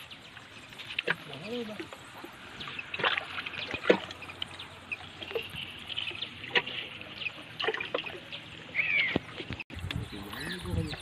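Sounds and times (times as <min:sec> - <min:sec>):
outdoor background noise: 0:00.0 - 0:11.0
bird chirps: 0:08.2 - 0:09.4.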